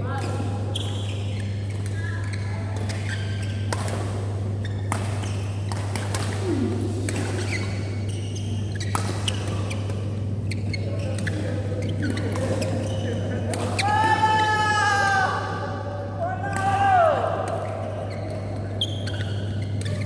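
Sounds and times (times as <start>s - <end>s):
shoes squeaking on court: 0.6s - 13.8s, 17.5s - 20.0s
rackets hitting shuttlecock: 2.8s - 10.2s.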